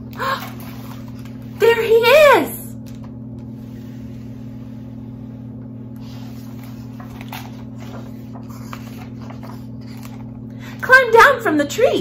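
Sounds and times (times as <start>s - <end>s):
low electrical hum: 0.0s - 12.0s
paper pages rustling: 5.9s - 10.4s.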